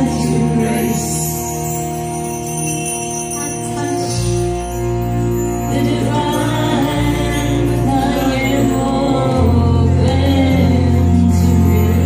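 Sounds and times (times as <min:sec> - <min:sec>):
voices singing a chant: 0:00.0 - 0:01.5, 0:05.6 - 0:12.0
low bass notes: 0:03.3 - 0:12.0.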